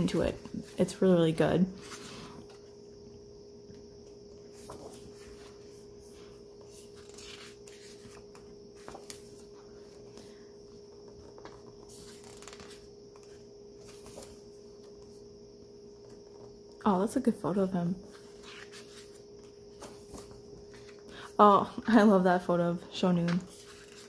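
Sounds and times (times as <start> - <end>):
faint steady hum: 0.0 - 24.0
book pages turning: 1.8 - 2.7, 4.4 - 10.4, 11.0 - 15.2, 18.0 - 21.1, 23.2 - 24.0.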